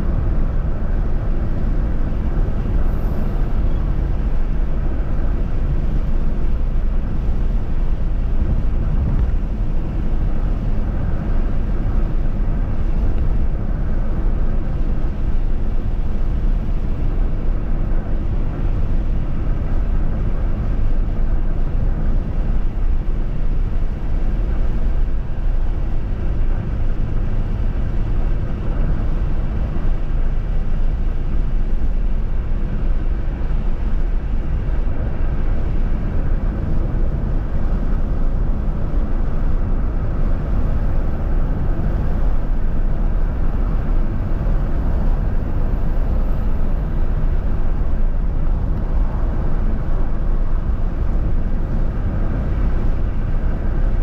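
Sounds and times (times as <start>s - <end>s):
car road and engine noise: 0.0s - 54.0s.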